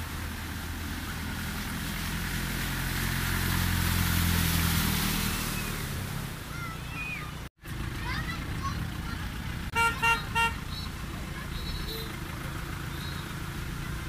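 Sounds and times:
wheels splashing water: 0:00.0 - 0:14.0
truck engine running: 0:05.4 - 0:14.0.

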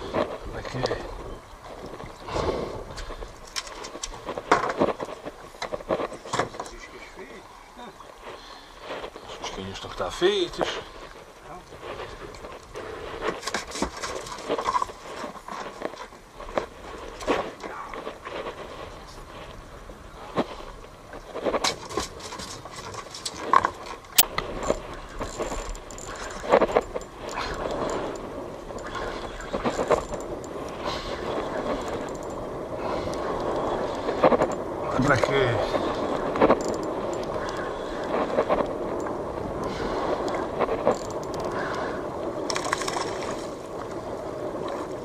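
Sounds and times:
boat noise at sea: 0:00.0 - 0:45.0.

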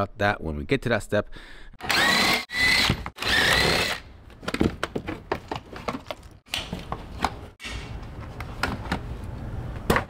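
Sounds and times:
power tool motor whirring: 0:01.8 - 0:04.0.

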